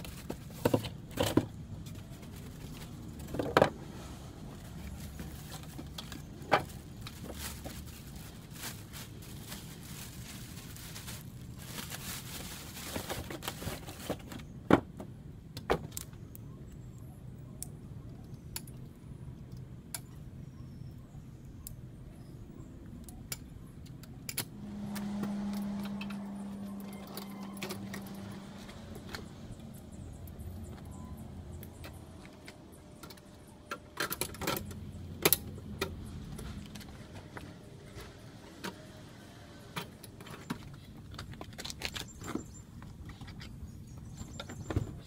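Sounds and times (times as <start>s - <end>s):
plastic wrap rustling: 4.5s - 14.4s
steady low hum: 15.1s - 40.2s.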